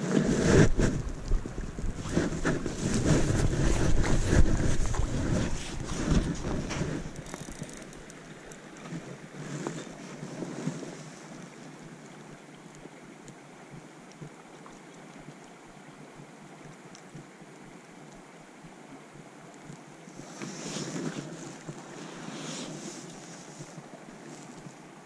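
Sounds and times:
wind buffeting microphone: 0.0s - 7.8s
faint steady hiss: 0.0s - 25.0s.

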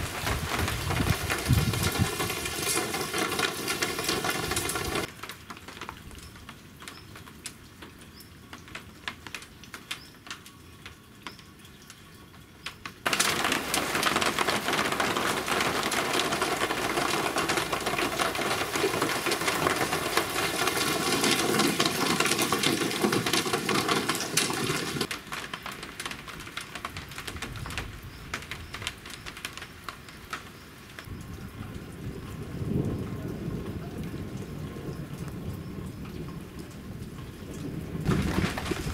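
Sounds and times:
heavy downpour: 0.0s - 38.9s
rain dripping: 0.0s - 38.9s.

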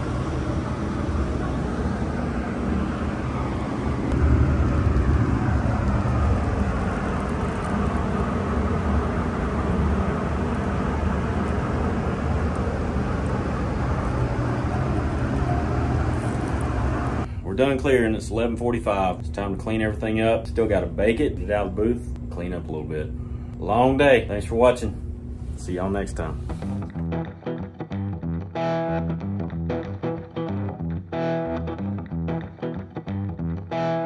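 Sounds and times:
ventilation fans rumbling: 0.0s - 27.2s.

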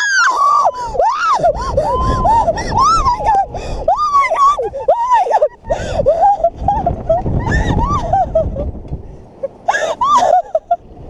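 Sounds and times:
riders screaming: 0.0s - 8.2s
wind rushing over microphone: 0.0s - 11.0s.

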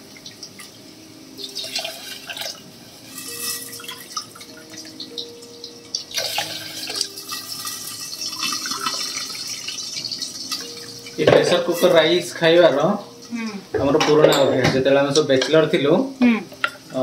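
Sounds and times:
hot water pouring into steel tumbler: 1.5s - 4.8s, 6.1s - 12.2s.

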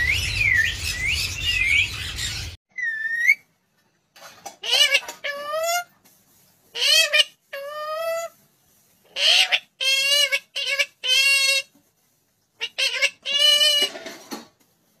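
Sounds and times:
parakeet talking: 12.6s - 13.8s.

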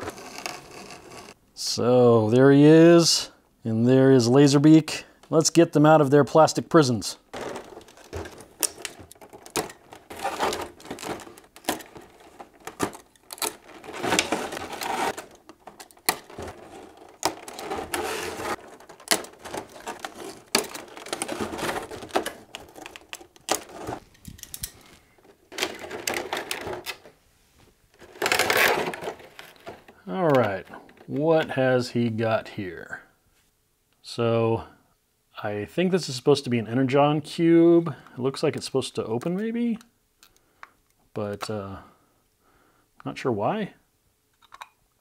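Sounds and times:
clicks and crackles: 7.3s - 27.1s, 44.3s - 45.0s
plastic bags crinkling: 7.3s - 27.1s, 28.0s - 30.6s.

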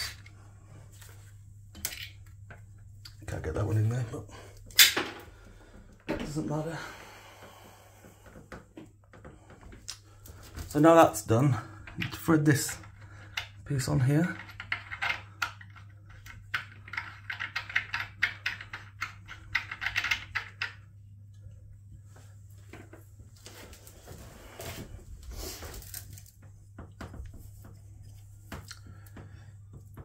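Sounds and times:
rustling handling noise: 22.0s - 26.7s.

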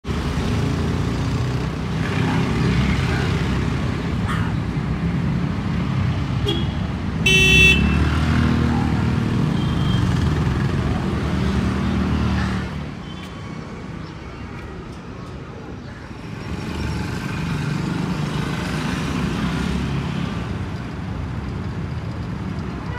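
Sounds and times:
road traffic hum: 0.0s - 22.9s
vehicle horn honking: 6.4s - 8.1s.

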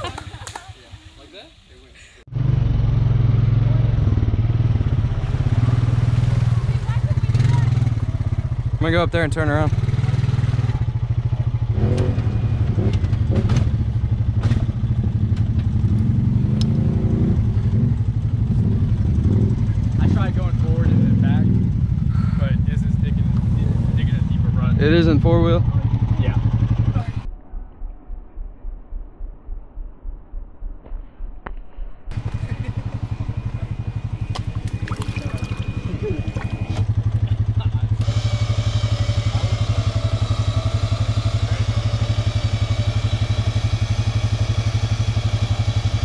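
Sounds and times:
atv engine running: 0.0s - 30.8s, 32.1s - 46.0s
mud and water dripping: 33.8s - 36.9s.

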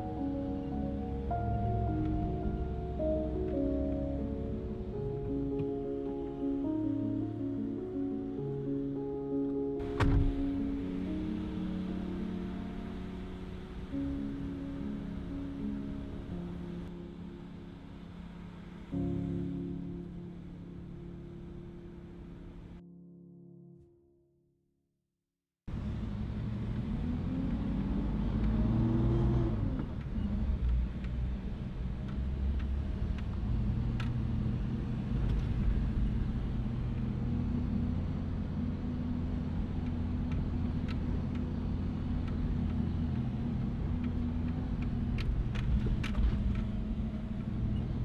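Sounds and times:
vehicle engine from inside cab: 25.7s - 48.0s.

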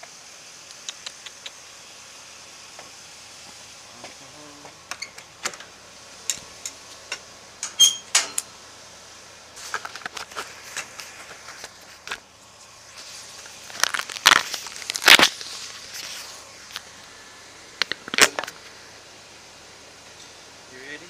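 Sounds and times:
steady hiss: 0.0s - 21.0s
clicks scrapes and crackles: 9.6s - 12.2s, 13.4s - 16.9s.

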